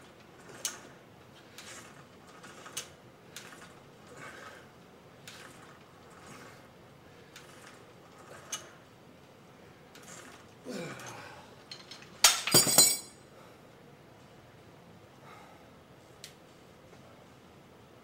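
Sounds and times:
person grunting: 10.6 - 11.5.

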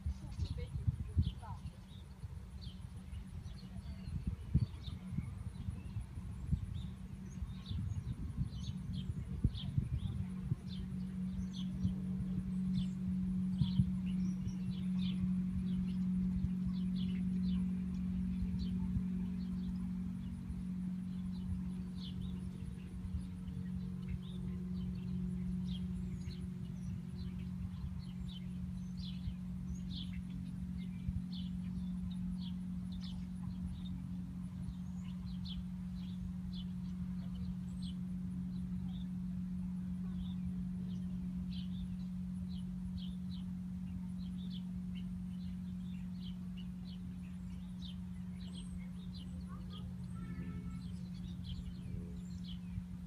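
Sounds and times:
small birds chirping: 0.0 - 53.0
steady low hum: 0.0 - 53.0.

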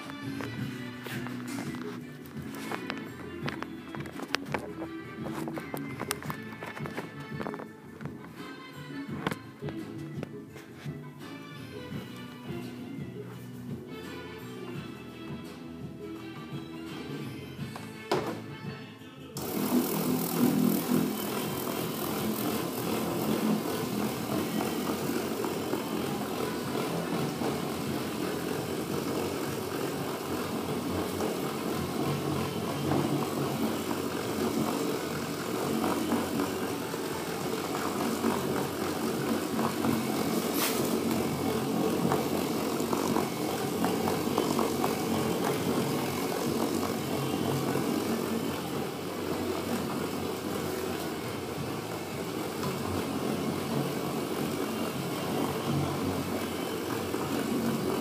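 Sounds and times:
orbital polisher running: 0.0 - 7.6, 19.4 - 58.0.

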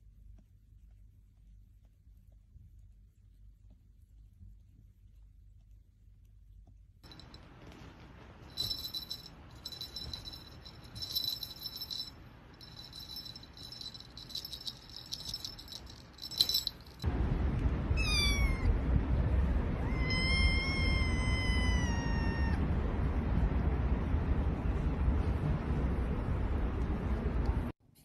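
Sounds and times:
faint high-pitched rattling: 8.4 - 17.0
kitten meowing: 18.0 - 18.7, 19.8 - 22.6.

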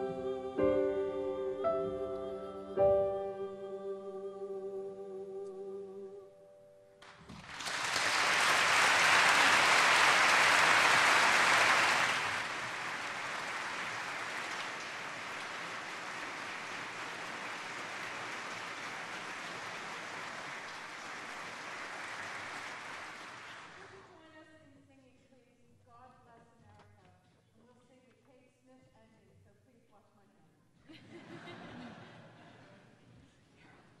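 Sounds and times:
choir holding a chord: 0.0 - 6.6
audience applause: 7.0 - 24.0.

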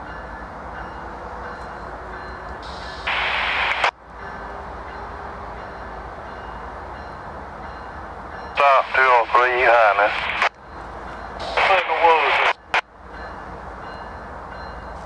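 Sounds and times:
diesel locomotive engines rumbling: 0.0 - 15.0
loud air hiss: 2.6 - 3.9.

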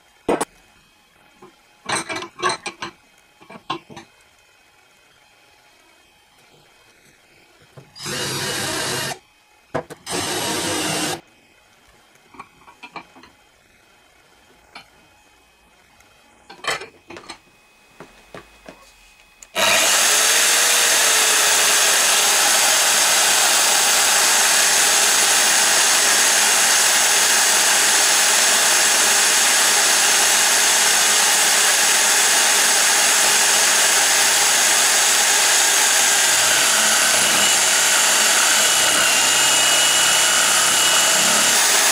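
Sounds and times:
cordless drill running: 8.0 - 9.2, 10.0 - 11.2, 19.5 - 41.9
drill press boring into wood: 8.0 - 9.2, 10.0 - 11.2, 19.5 - 41.9
tools knocking and clicking: 12.3 - 13.4.

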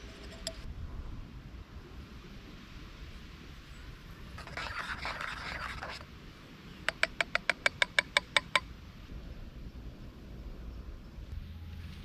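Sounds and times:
utensil scraping metal pot: 0.0 - 0.6, 4.4 - 6.0.

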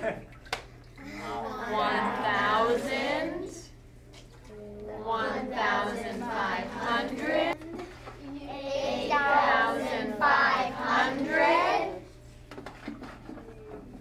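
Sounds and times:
children chanting numbers: 8.6 - 12.0.

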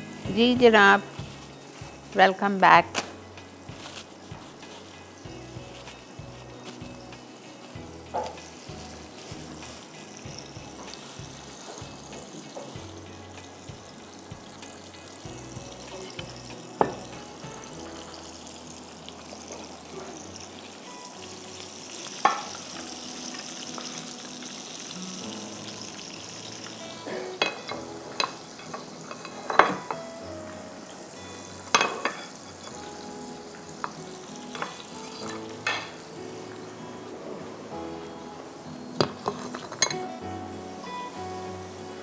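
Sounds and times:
food sizzling in a frying pan: 0.0 - 42.0
plates and utensils clinking: 8.1 - 8.6, 22.2 - 22.7, 26.9 - 30.2, 31.6 - 33.0, 33.8 - 36.1, 39.0 - 40.1.

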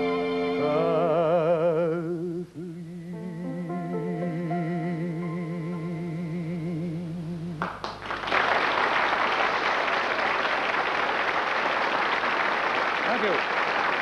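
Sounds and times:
audience applause: 7.6 - 14.0.

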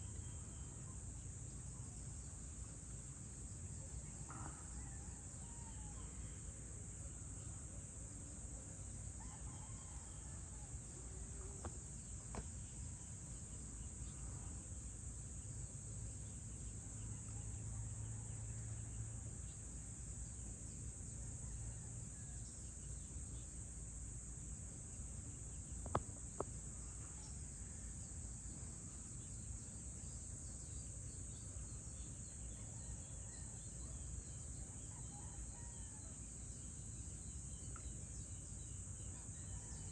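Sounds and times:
insect chorus drone: 0.0 - 39.9.

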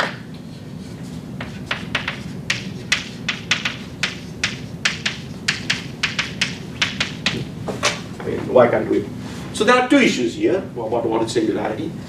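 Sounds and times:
chalk tapping on blackboard: 1.4 - 7.5.

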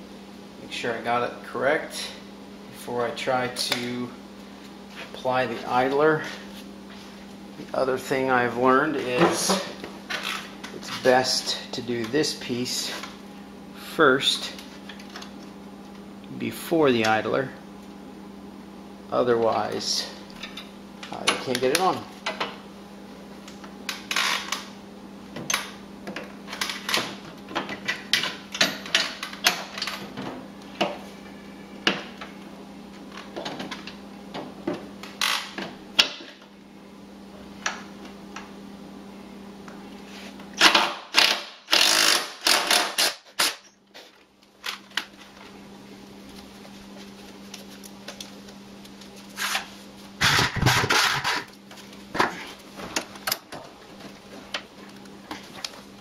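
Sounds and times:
cordless drill running: 41.2 - 43.1.

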